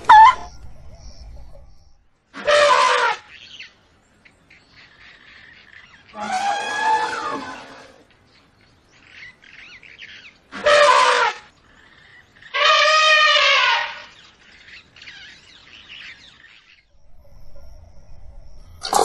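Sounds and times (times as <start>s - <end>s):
elephant trumpeting: 2.4s - 3.3s, 6.1s - 8.0s, 10.6s - 11.5s, 12.5s - 14.1s.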